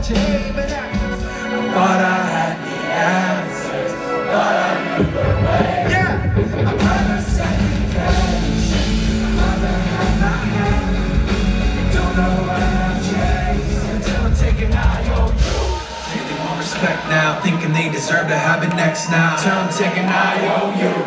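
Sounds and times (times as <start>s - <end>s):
live rock band playing: 0.0s - 2.6s, 4.0s - 17.5s
person singing: 0.0s - 21.0s
heavy bass line: 5.0s - 17.6s.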